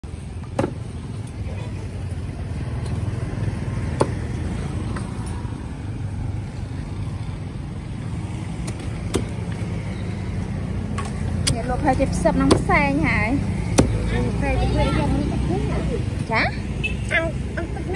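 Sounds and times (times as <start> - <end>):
road traffic rumble: 0.0 - 17.9.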